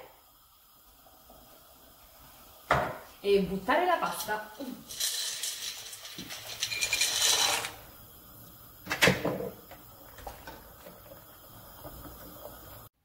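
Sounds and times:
dry pasta rattling and splashing: 0:04.9 - 0:07.8.

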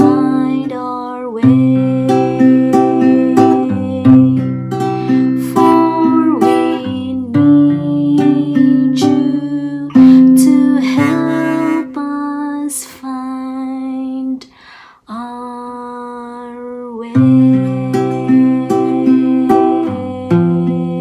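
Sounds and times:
acoustic guitar: 0:00.0 - 0:12.1, 0:16.5 - 0:21.0
woman singing a slow hymn: 0:00.0 - 0:21.0.

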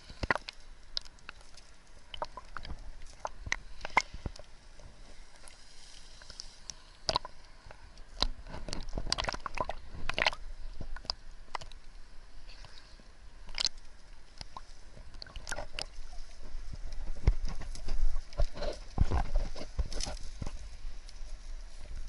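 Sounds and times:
sea water sloshing and splashing: 0:00.0 - 0:22.0.

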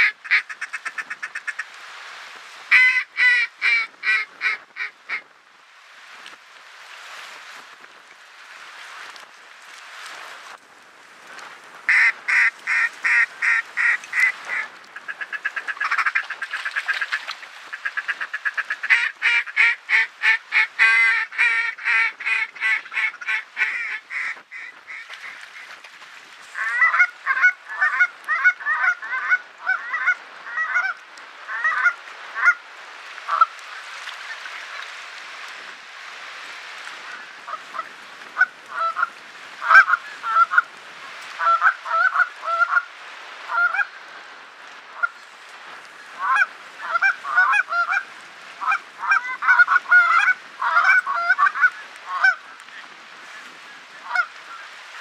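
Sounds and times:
ducks quacking: 0:00.0 - 0:01.8, 0:02.7 - 0:05.2, 0:11.9 - 0:25.8, 0:26.5 - 0:32.6, 0:33.3 - 0:34.9, 0:37.0 - 0:40.7, 0:41.4 - 0:42.9, 0:43.5 - 0:43.9, 0:44.9 - 0:45.2, 0:46.1 - 0:52.9, 0:53.8 - 0:55.0
goose honks: 0:02.7 - 0:05.2, 0:37.0 - 0:40.7, 0:48.6 - 0:52.4, 0:54.0 - 0:54.3.

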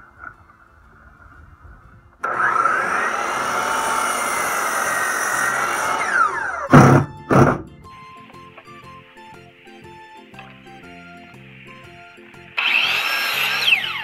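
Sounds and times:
cordless drill driving screws: 0:02.2 - 0:07.0, 0:12.6 - 0:14.0
miter saw cutting wood: 0:02.2 - 0:07.7, 0:10.7 - 0:14.0.

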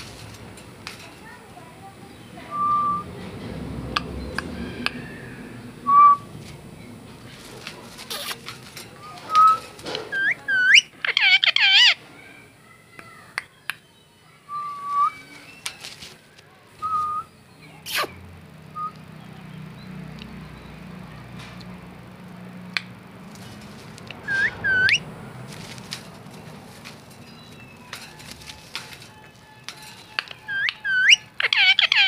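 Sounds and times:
parakeet whistling: 0:02.5 - 0:03.1, 0:05.8 - 0:06.2, 0:09.0 - 0:12.0, 0:24.2 - 0:25.0, 0:30.0 - 0:32.0.

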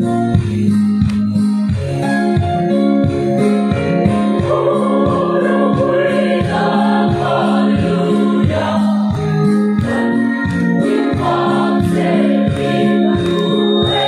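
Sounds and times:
steady beat: 0:02.4 - 0:14.0
choir singing a gospel hymn: 0:04.0 - 0:14.0.

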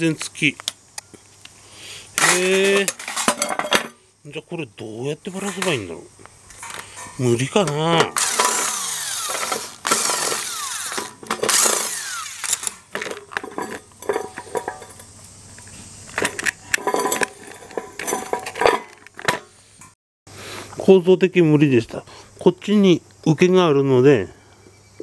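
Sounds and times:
knocks and clinks of parts: 0:02.2 - 0:04.0, 0:06.5 - 0:19.5
scraping and prying housing: 0:07.7 - 0:15.0.

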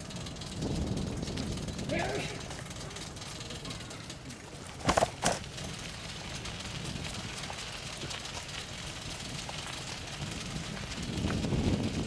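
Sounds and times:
bicycle being ridden: 0:00.0 - 0:12.0
dog trotting: 0:04.7 - 0:05.5.

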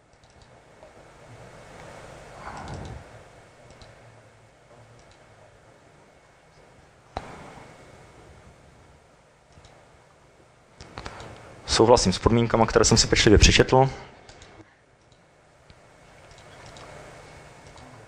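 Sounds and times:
faint room noise: 0:00.0 - 0:18.0
mouse and keyboard clicks: 0:00.1 - 0:00.5, 0:02.5 - 0:03.0, 0:03.7 - 0:04.0, 0:05.0 - 0:05.3, 0:09.5 - 0:09.8, 0:10.8 - 0:11.4, 0:14.3 - 0:17.0, 0:17.6 - 0:18.0.

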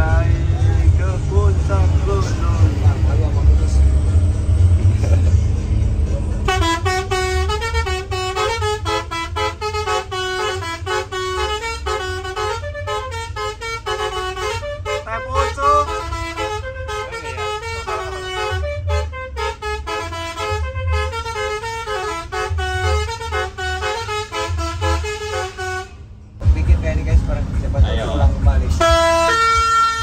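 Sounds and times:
bus horn playing a tune: 0:06.4 - 0:26.2, 0:28.7 - 0:30.0
pulsing low beat: 0:26.4 - 0:30.0.

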